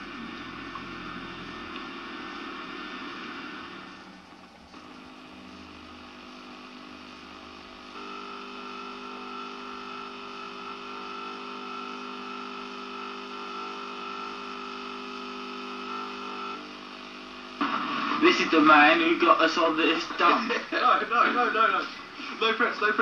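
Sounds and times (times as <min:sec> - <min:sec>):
steady multi-pitched hum: 0:00.0 - 0:23.0.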